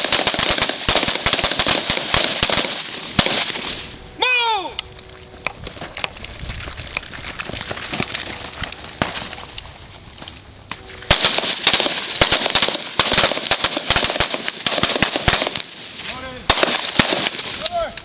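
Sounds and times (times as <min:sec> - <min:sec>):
gunfire: 0:00.0 - 0:03.9, 0:11.1 - 0:17.6.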